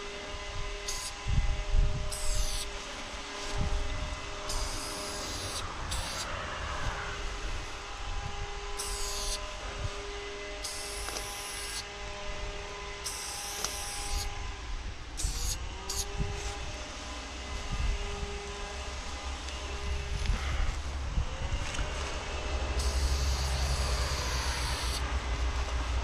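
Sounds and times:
low rumble with hum: 0:00.0 - 0:26.0
spray paint can hissing: 0:02.1 - 0:02.7, 0:04.5 - 0:06.3, 0:08.8 - 0:09.4, 0:10.6 - 0:11.8, 0:13.0 - 0:14.3, 0:15.2 - 0:16.0, 0:22.8 - 0:25.0.

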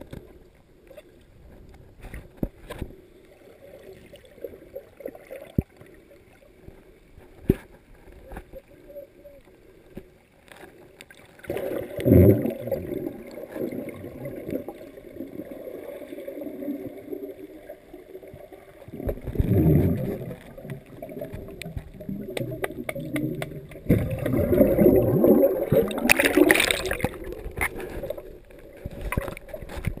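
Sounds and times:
muffled underwater water movement: 0:00.0 - 0:30.0
gurgling bubbling water: 0:11.4 - 0:30.0.

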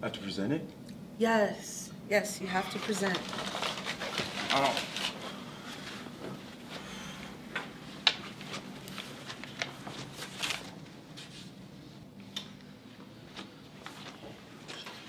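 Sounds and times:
faint room hum: 0:00.0 - 0:15.0
footsteps and rustles: 0:02.7 - 0:11.7, 0:12.8 - 0:15.0.

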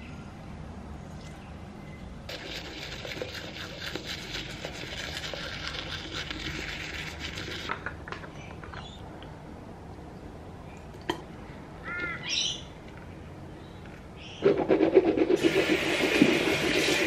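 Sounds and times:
toothbrush scrubbing teeth: 0:02.3 - 0:07.8.

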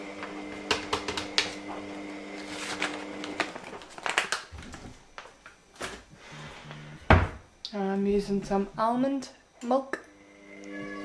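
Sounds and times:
powder pouch crinkling: 0:02.4 - 0:06.0.

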